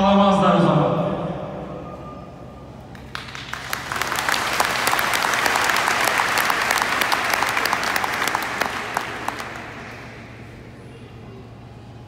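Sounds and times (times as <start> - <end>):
audience applauding: 2.9 - 10.5.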